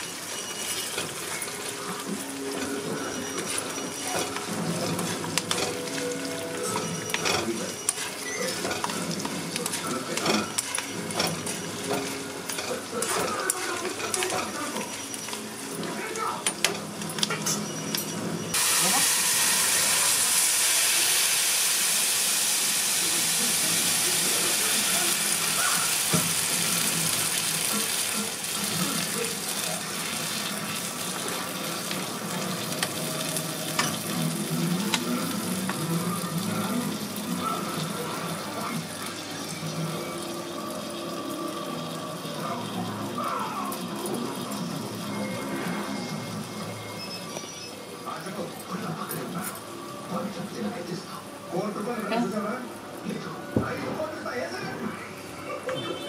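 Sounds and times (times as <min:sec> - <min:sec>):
food sizzling in pan: 0:00.0 - 0:15.9, 0:18.5 - 0:47.0.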